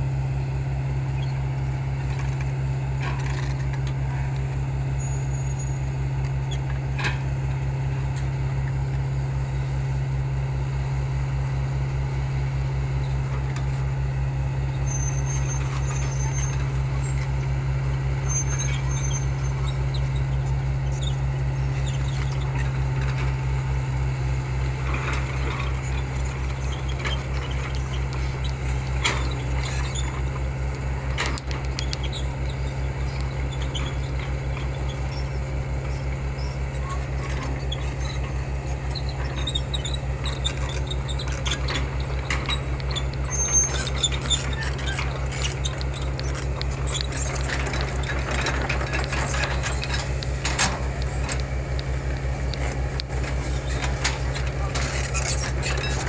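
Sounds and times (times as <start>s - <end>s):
diesel engine running: 0.0s - 56.0s
metal clicks and knocks: 41.6s - 56.0s.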